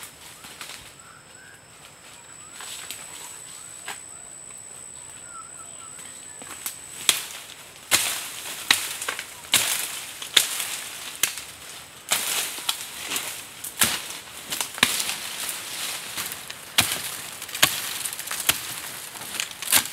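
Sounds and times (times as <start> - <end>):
dry brush crackling and snapping: 0.0 - 1.0, 1.8 - 5.2, 6.0 - 19.9
thin high whine: 0.8 - 8.6.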